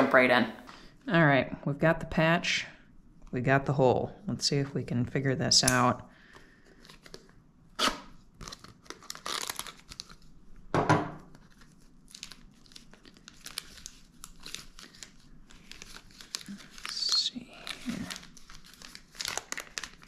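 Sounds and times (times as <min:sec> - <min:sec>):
plastic crackling and rustling: 0:06.6 - 0:07.4, 0:08.0 - 0:10.4, 0:11.2 - 0:20.0
package tearing open: 0:06.8 - 0:10.4, 0:11.2 - 0:20.0.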